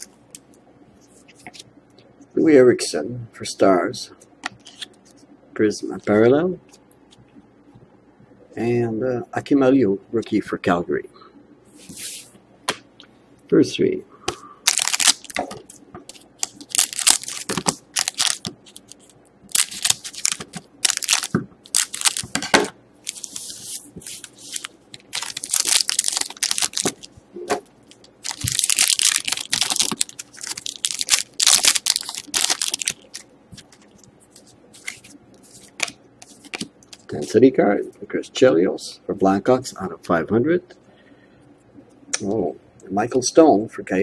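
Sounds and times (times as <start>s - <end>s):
foil packs crinkling: 14.7s - 27.2s, 27.8s - 37.2s.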